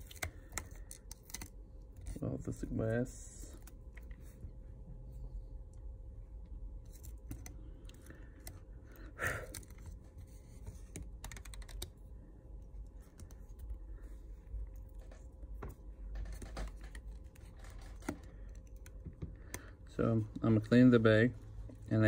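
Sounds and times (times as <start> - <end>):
tool clicking and scraping on phone: 0.0 - 2.2, 6.8 - 8.7, 9.4 - 12.0, 14.4 - 20.5.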